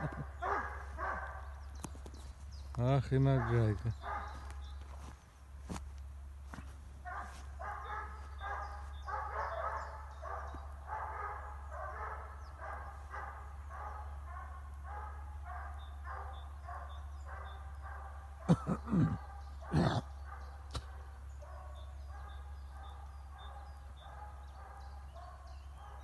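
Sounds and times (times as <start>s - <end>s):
hound baying: 0.0s - 1.6s, 3.3s - 4.7s, 7.0s - 26.0s.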